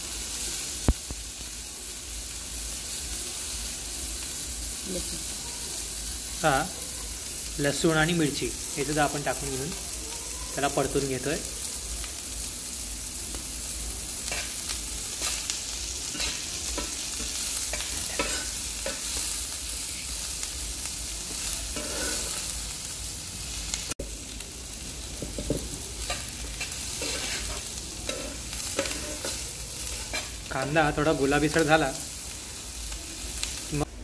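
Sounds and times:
vegetables sizzling in oil: 0.0s - 34.0s
metal spatula scraping pan: 21.7s - 22.5s, 26.0s - 30.4s.

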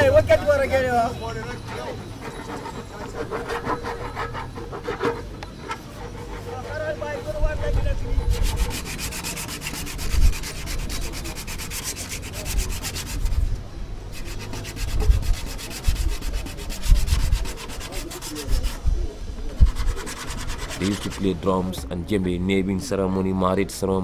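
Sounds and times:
sandpaper rubbing wood: 1.6s - 5.2s, 7.7s - 13.5s, 14.1s - 21.4s.

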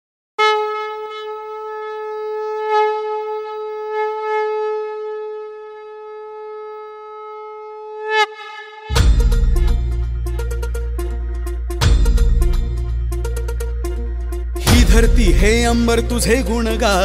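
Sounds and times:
conch shell blown: 0.4s - 11.8s.

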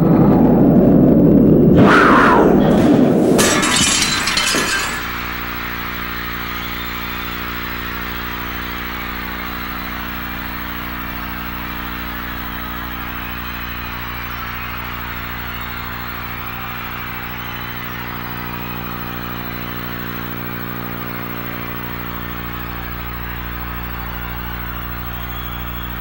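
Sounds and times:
low droning tone: 0.0s - 4.1s
pyrotechnic blast with crackling sparks: 0.0s - 6.4s
stadium crowd cheering: 1.7s - 26.0s.

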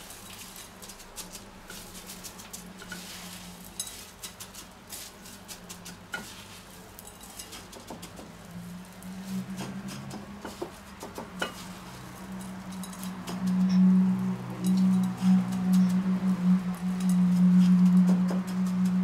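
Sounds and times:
cornflake breading crackling: 0.0s - 13.4s
steady low hum: 11.2s - 19.0s.

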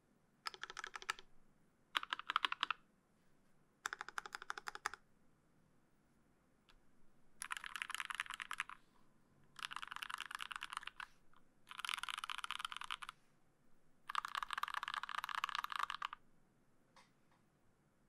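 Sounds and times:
mechanical keyboard typing: 0.5s - 1.2s, 2.0s - 2.8s, 3.8s - 5.0s, 7.4s - 8.8s, 9.6s - 11.1s, 11.7s - 13.1s, 14.1s - 16.2s.

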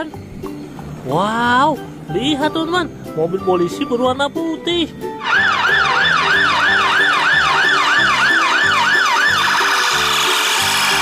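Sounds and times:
police siren yelping and warbling: 5.2s - 10.3s.

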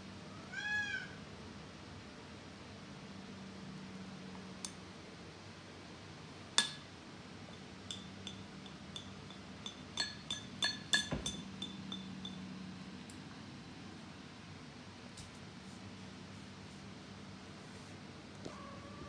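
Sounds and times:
spoon clinking against a dish: 6.6s - 6.9s, 7.5s - 12.5s.

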